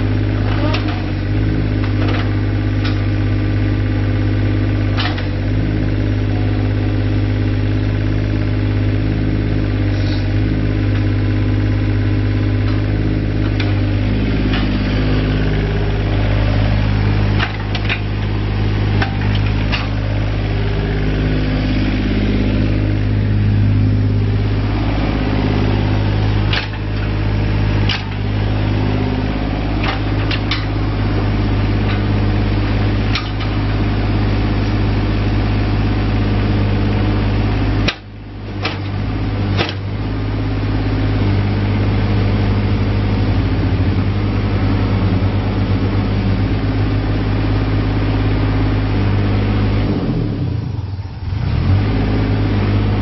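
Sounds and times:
excavator diesel engine running: 0.0 - 53.0
short sharp clanks: 26.5 - 27.1.

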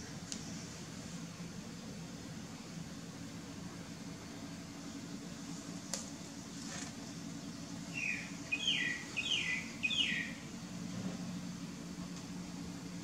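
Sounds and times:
steady low hum: 0.0 - 13.0
bird chirping: 7.9 - 10.5.

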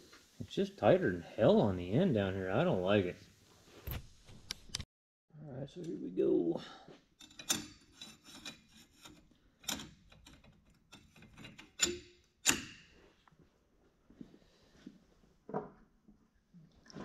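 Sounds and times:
metal parts clinking and knocking: 7.2 - 12.9.

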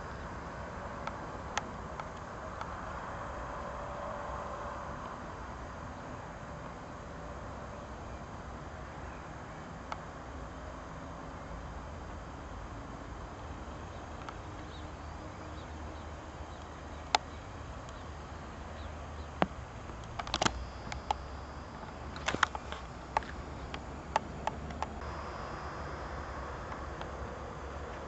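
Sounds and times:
low background noise: 0.0 - 28.0
sharp clicks: 19.4 - 25.1.

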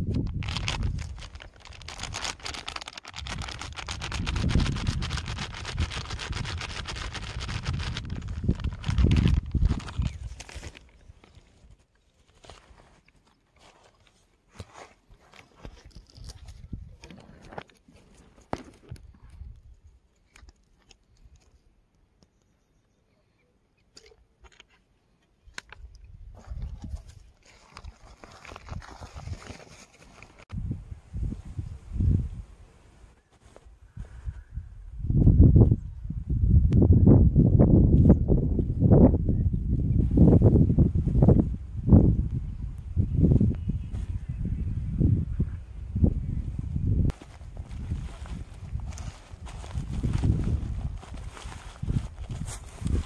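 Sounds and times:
plastic packet crinkling: 0.1 - 11.0, 27.4 - 30.4.

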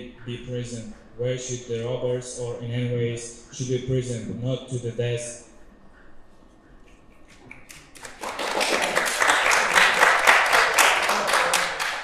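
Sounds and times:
people clapping: 7.3 - 12.0.

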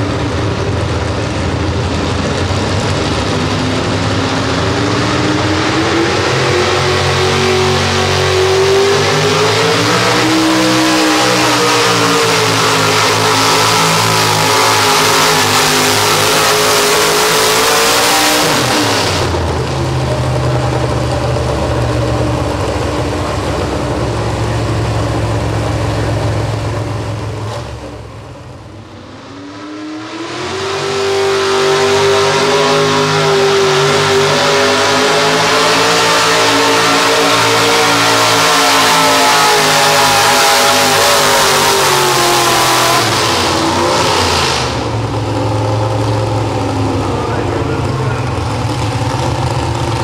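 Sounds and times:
truck engines at full throttle: 0.0 - 50.0
truck engine idling: 19.3 - 29.2, 44.8 - 50.0.

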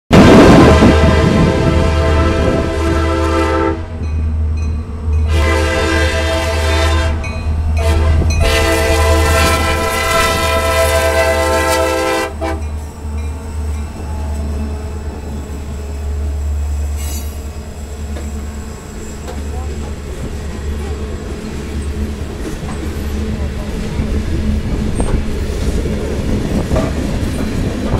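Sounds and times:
locomotive rumble: 0.1 - 27.9
train air horn: 0.4 - 4.0, 5.3 - 12.8
train wheel clicks: 24.0 - 27.9.

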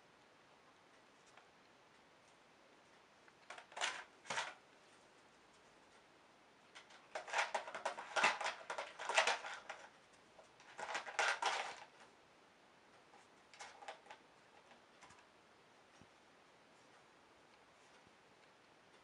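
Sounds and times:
cat chewing and pawing object: 6.7 - 12.1.

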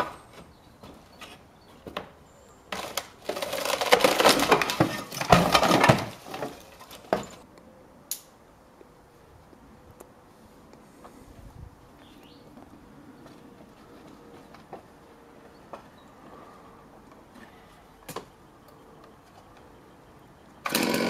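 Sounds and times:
roof tiles clattering and crunching: 2.7 - 7.4.

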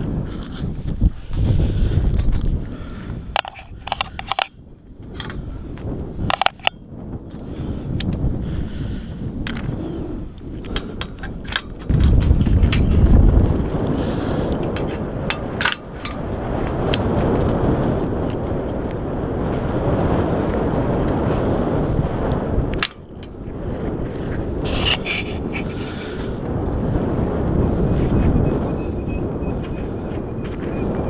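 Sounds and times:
wind buffeting microphone: 0.0 - 31.0
metallic clicks of carabiners: 3.4 - 5.5, 6.3 - 6.8, 10.6 - 13.0, 14.6 - 16.2.

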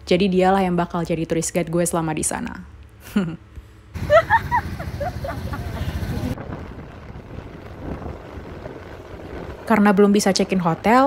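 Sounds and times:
outdoor traffic noise: 0.0 - 11.0
road noise from moving vehicle: 3.9 - 11.0.

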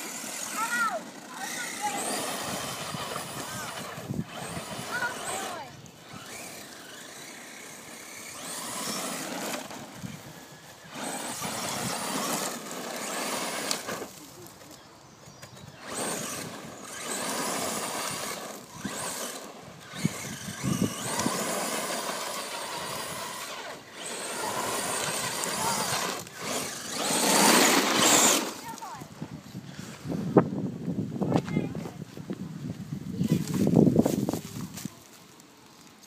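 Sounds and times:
electric motor whining: 0.0 - 14.8, 15.4 - 29.2.

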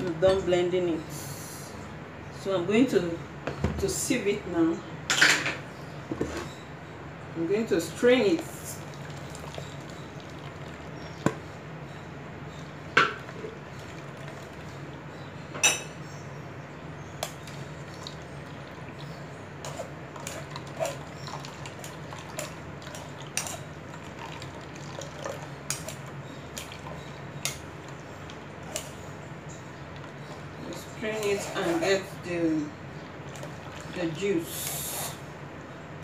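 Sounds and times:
juice trickling into bowl: 8.3 - 11.4, 13.2 - 15.2, 17.3 - 31.7, 32.8 - 34.8.

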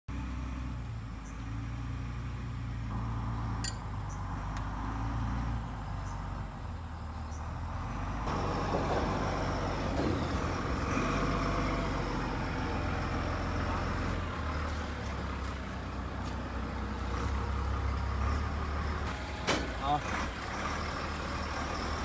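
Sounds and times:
excavator diesel engine idling: 5.7 - 22.0.

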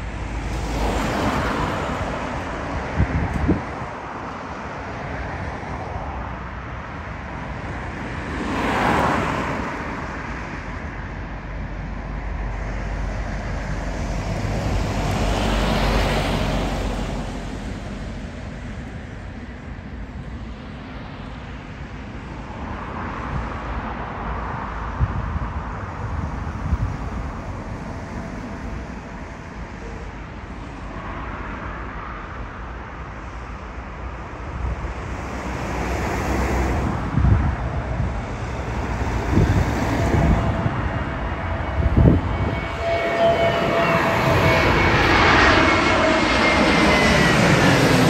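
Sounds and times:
distant jet engines roaring: 0.0 - 48.0
wind rumbling on microphone: 0.0 - 48.0.

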